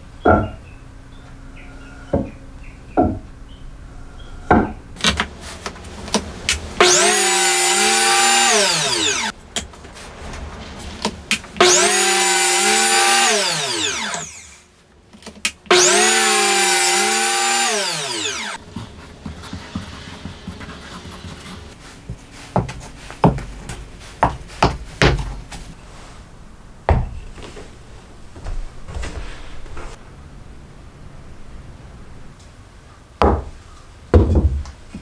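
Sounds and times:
electric planer whine: 0:06.8 - 0:09.3, 0:11.6 - 0:14.6, 0:15.7 - 0:18.6.

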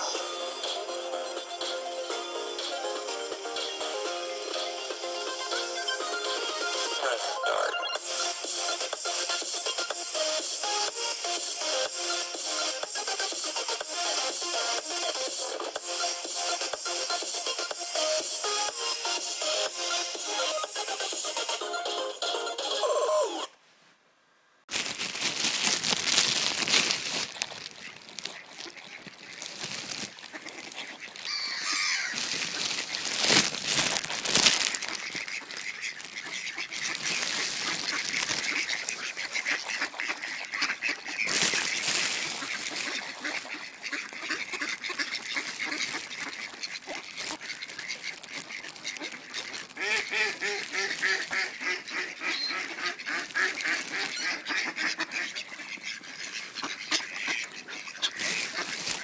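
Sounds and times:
ducks quacking: 0:00.0 - 0:23.5, 0:24.8 - 0:59.0.

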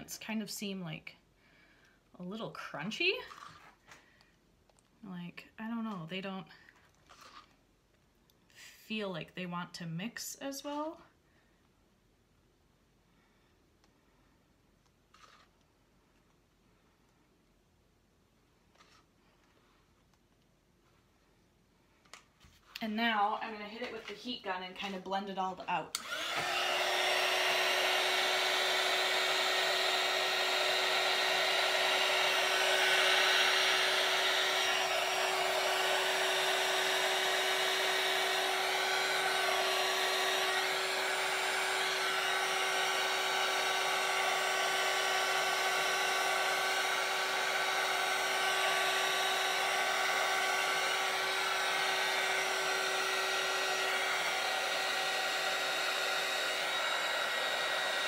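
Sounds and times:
heat gun blowing air: 0:25.9 - 0:58.0.

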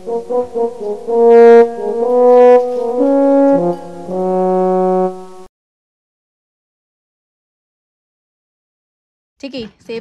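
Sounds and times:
melody of held notes: 0:00.0 - 0:05.5.

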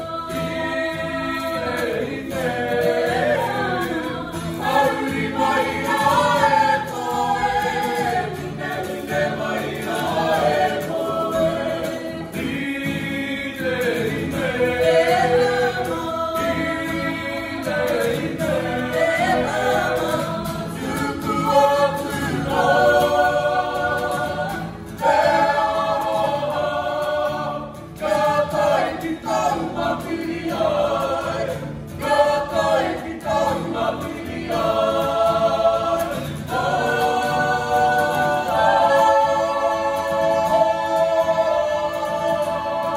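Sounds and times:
group singing together: 0:00.0 - 0:42.9
strummed acoustic guitar: 0:00.0 - 0:42.9.

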